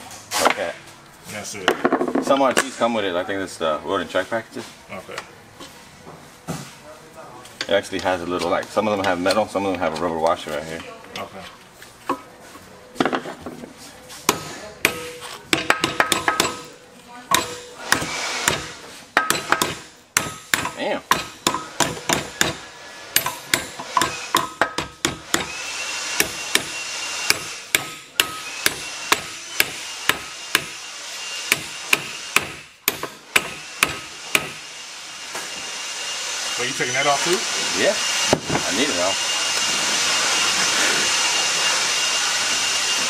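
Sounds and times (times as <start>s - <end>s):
hammer striking: 14.3s - 25.6s, 26.2s - 30.8s, 31.5s - 34.6s
high whine and hiss: 17.4s - 43.0s.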